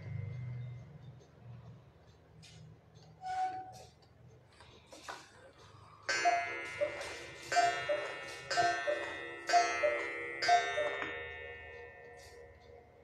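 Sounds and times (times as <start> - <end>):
cuckoo clock calls: 6.1 - 11.6
ringing gong stroke: 6.1 - 12.6.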